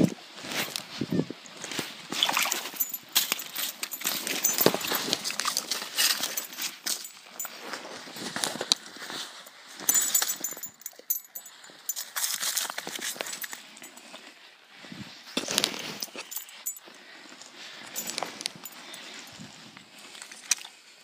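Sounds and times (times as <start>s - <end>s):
handling noise: 2.2s - 14.2s, 15.4s - 17.0s, 17.7s - 19.5s.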